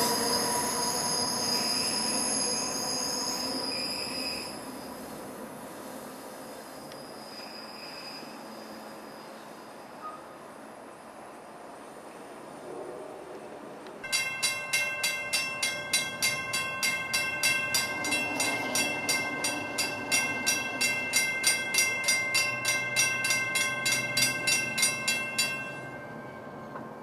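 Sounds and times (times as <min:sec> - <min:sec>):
railroad crossing bell ringing: 0:14.0 - 0:27.0.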